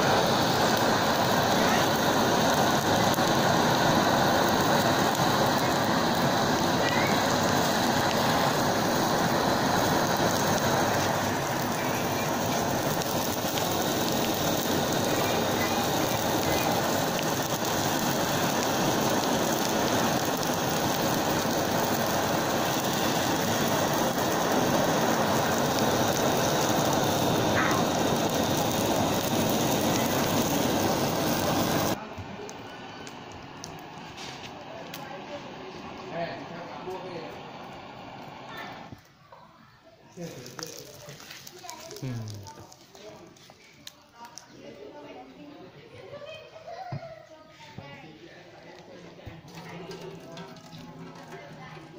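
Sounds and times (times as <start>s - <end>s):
gas torches hissing: 0.0s - 46.9s, 47.6s - 51.9s.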